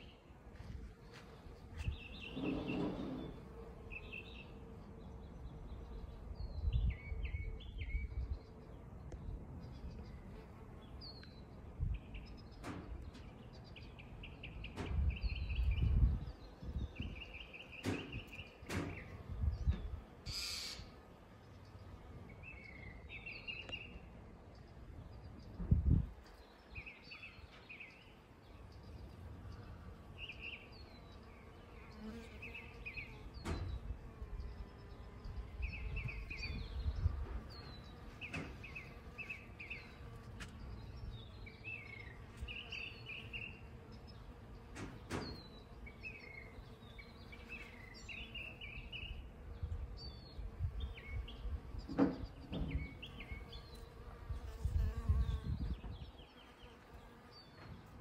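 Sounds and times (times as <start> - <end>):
bee buzzing: 0.0 - 9.1, 28.0 - 58.0
small birds chirping: 0.0 - 58.0.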